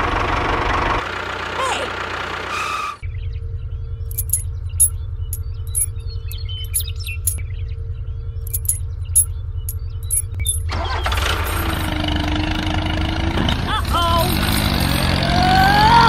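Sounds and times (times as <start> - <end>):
noisy engine-like sound: 0.0 - 16.0
low pulsing rumble: 3.0 - 10.7
small metal chain clinking: 4.1 - 6.0, 6.6 - 7.4, 8.5 - 10.7, 11.3 - 11.9, 14.2 - 15.2.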